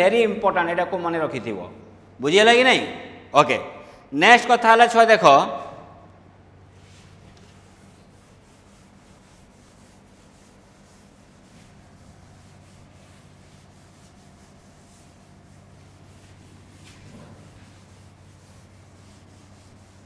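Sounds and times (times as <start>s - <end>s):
steady low hum: 5.7s - 20.0s
duster wiping chalkboard: 6.6s - 20.0s.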